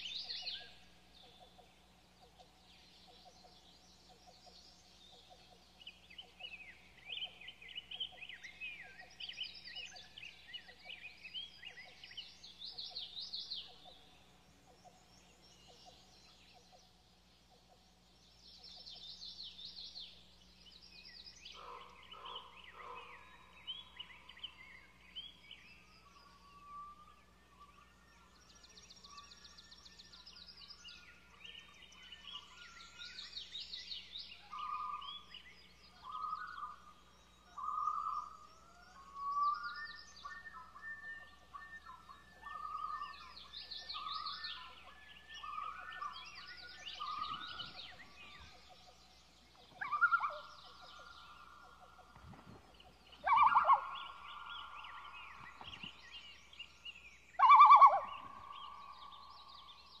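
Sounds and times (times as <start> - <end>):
songbirds chirping: 0.0 - 60.0
loon wailing calls: 34.4 - 35.3, 37.6 - 39.6, 40.3 - 48.8, 49.5 - 52.2, 53.2 - 55.7, 57.4 - 59.0.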